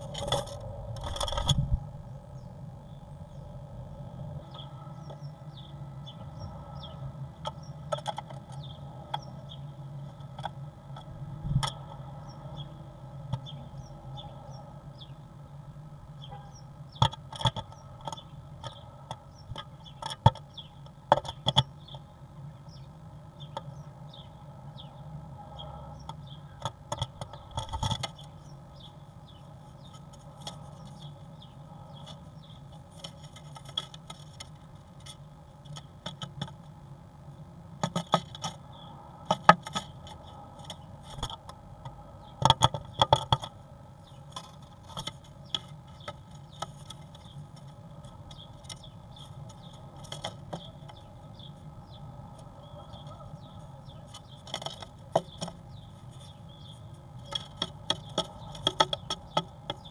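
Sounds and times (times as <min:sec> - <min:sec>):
bird tapping inside wooden box: 0:00.0 - 0:01.8, 0:07.4 - 0:09.3, 0:10.2 - 0:12.0, 0:16.9 - 0:22.0, 0:26.0 - 0:28.3, 0:29.8 - 0:31.1, 0:32.0 - 0:36.6, 0:37.8 - 0:51.1, 0:53.9 - 0:59.9
steady low hum: 0:00.0 - 0:59.9.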